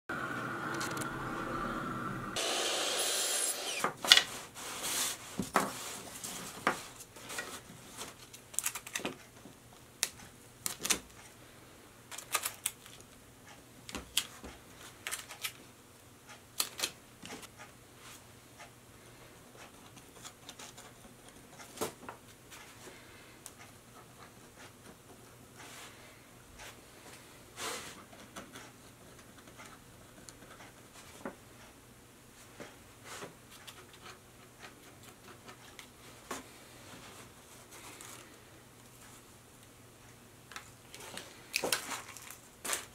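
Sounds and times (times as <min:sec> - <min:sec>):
miter saw cutting: 0:00.1 - 0:04.0.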